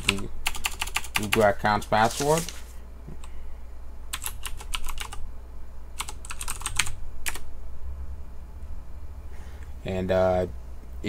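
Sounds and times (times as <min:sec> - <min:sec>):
computer keyboard typing: 0:00.0 - 0:01.5, 0:04.1 - 0:05.2, 0:06.0 - 0:07.4
low steady hum: 0:00.0 - 0:11.0.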